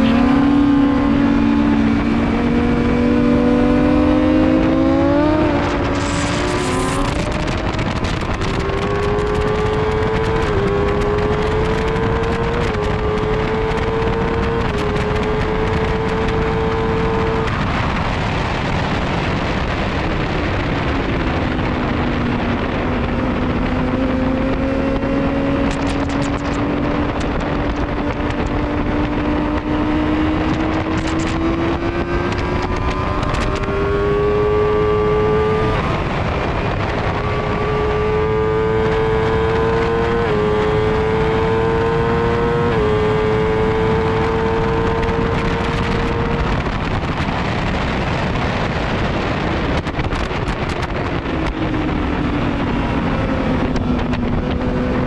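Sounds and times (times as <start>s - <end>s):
motorcycle engine revving: 0.0s - 55.0s
wind rush: 0.0s - 55.0s.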